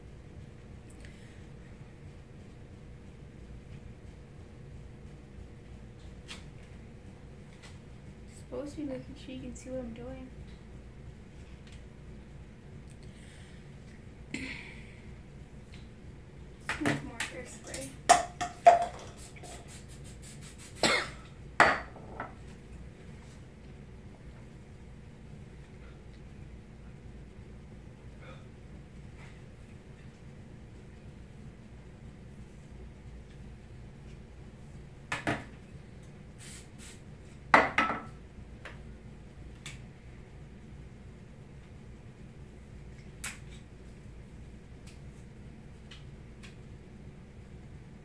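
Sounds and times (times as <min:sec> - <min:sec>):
spray bottle hissing sprays: 0:19.0 - 0:20.9, 0:36.4 - 0:37.0
person coughing: 0:20.8 - 0:21.3.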